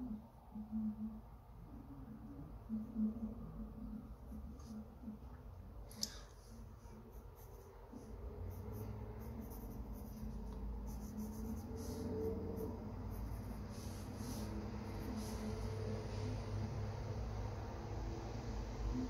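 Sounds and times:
low background hum: 0:00.0 - 0:19.0
pencil scratching on paper: 0:06.6 - 0:16.3.

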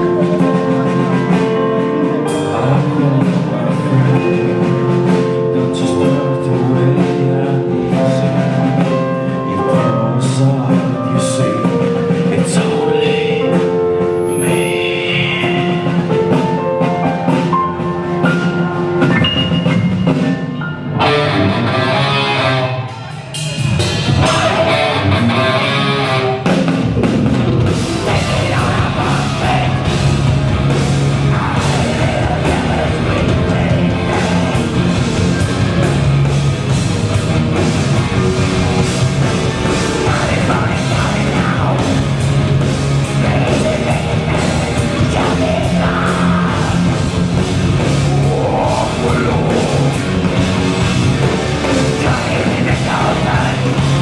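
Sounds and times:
man singing: 0:00.0 - 0:16.9, 0:24.0 - 0:26.4, 0:27.7 - 0:36.0, 0:39.2 - 0:50.4, 0:51.4 - 0:54.0
drum kit: 0:00.0 - 0:54.0
electric guitars: 0:00.0 - 0:54.0.

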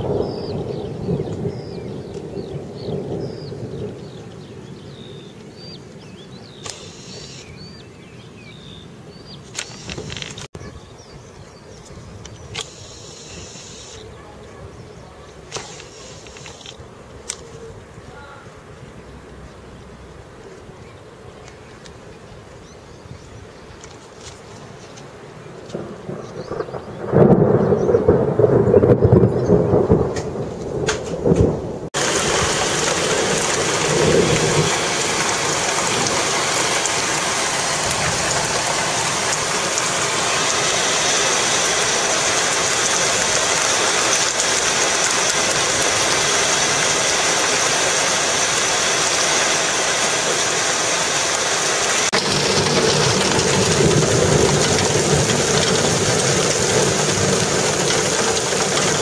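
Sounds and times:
thunder rumbling: 0:00.0 - 0:04.4, 0:25.7 - 0:46.3, 0:51.8 - 0:59.0
heavy rain pouring: 0:06.6 - 0:07.5, 0:09.5 - 0:10.5, 0:12.5 - 0:14.1, 0:14.9 - 0:17.0, 0:27.0 - 0:59.0.

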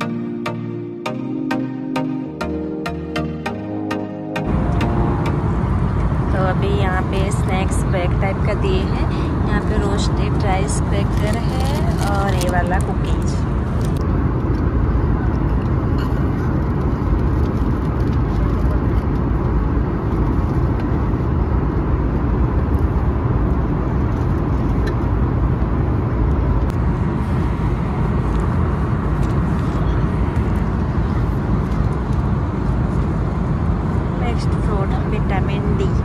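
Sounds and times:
airliner cabin rumble: 0:04.4 - 0:36.0.

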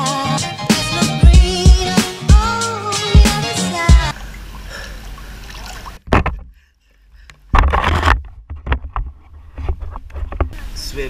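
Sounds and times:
pool water splashing and sloshing: 0:04.0 - 0:06.1.

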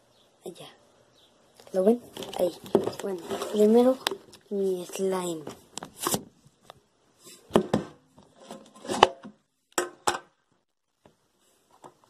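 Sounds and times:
plastic tub knocks and clacks: 0:02.2 - 0:04.2, 0:07.5 - 0:08.0.

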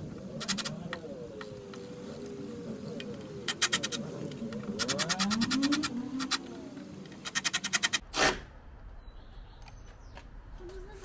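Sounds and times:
ratchet tool clicking: 0:03.5 - 0:04.0, 0:04.8 - 0:06.4, 0:07.2 - 0:08.0.

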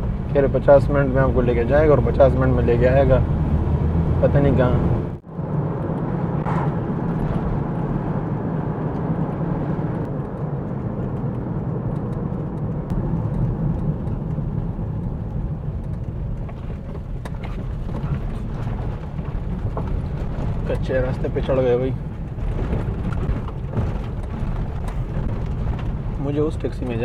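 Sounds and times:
car engine and road rumble: 0:00.0 - 0:27.0
light clicks and rattles: 0:10.1 - 0:27.0.

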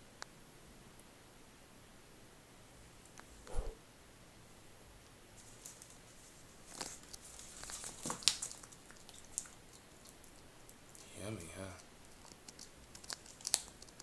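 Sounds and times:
claws clicking on wooden floor: 0:11.8 - 0:14.0.

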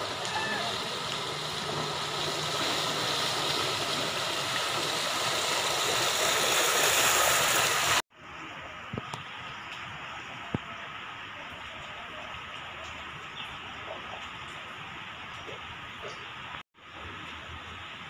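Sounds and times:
bicycle wheels splashing through water: 0:00.0 - 0:08.0
hiss of water: 0:00.0 - 0:08.0.

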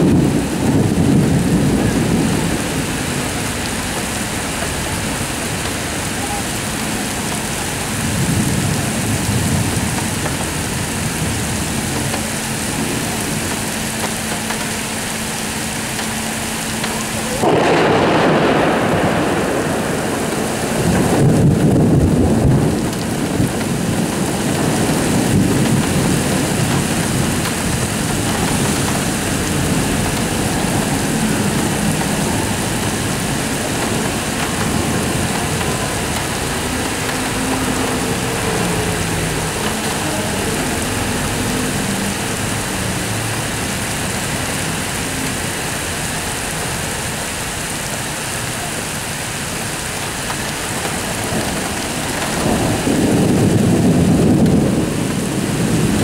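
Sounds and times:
thunder: 0:00.0 - 0:05.8, 0:16.9 - 0:44.0, 0:50.6 - 0:56.0
heavy rain: 0:00.0 - 0:56.0.

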